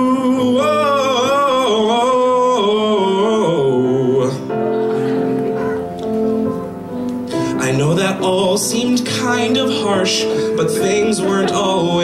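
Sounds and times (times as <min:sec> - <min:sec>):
man singing with vibrato: 0:00.0 - 0:04.8, 0:07.3 - 0:12.0
instrumental accompaniment: 0:00.0 - 0:12.0.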